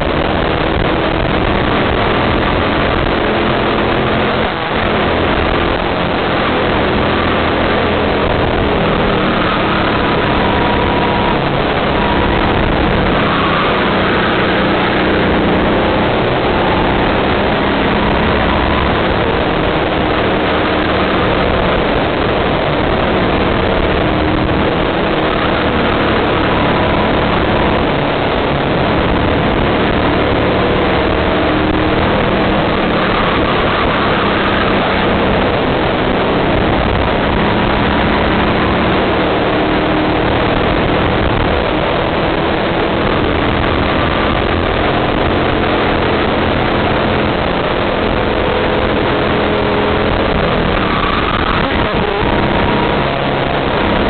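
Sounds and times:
go-kart engine running hard: 0.0 - 54.0
wind and road noise: 0.0 - 54.0.

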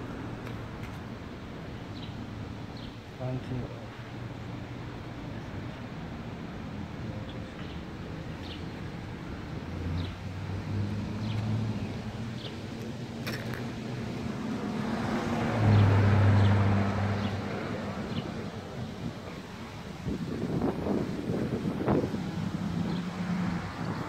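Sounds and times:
car passing: 9.0 - 24.0.

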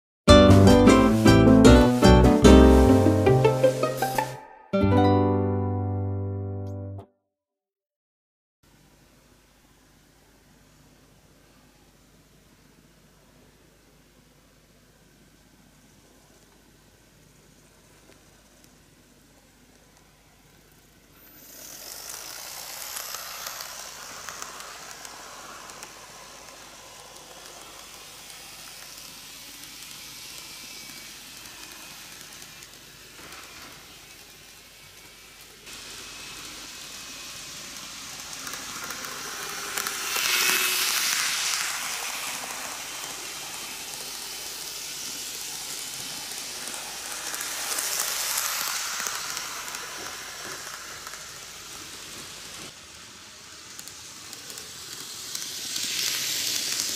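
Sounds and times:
model train wheels rattling on rails: 20.5 - 56.9.

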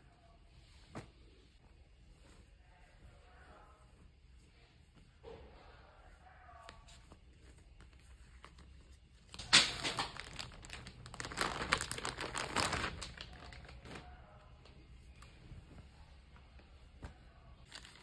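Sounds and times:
plastic garment bag crinkling: 9.2 - 14.2, 17.6 - 18.0
sharp plastic crackle: 9.3 - 14.1, 17.6 - 18.0.

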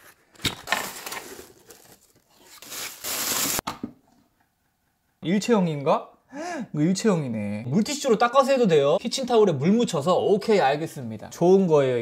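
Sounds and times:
cardboard and packaging rustling: 0.0 - 3.6
tape seal peeled off: 0.0 - 3.6.

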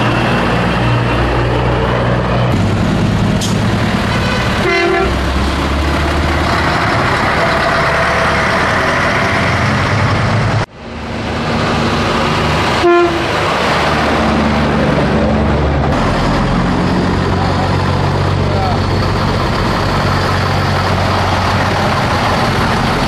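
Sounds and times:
diesel truck engines: 0.0 - 23.0
truck horn toot: 4.2 - 5.2, 12.8 - 13.4.

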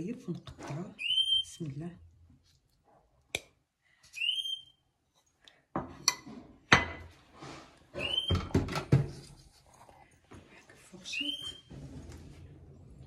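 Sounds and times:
rising whistle-like squeak: 8.0 - 8.4, 11.1 - 11.7.

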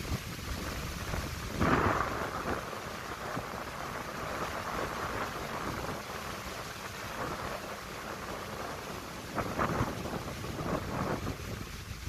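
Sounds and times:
wind rumble on microphone: 0.0 - 12.0
wind rustling tree leaves: 0.0 - 12.0.

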